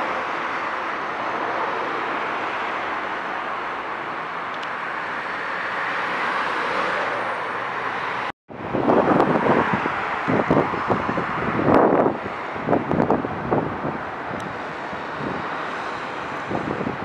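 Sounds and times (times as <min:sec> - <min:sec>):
high-speed train rolling on tracks: 0:00.0 - 0:17.0
wind buffeting microphone: 0:08.5 - 0:17.0.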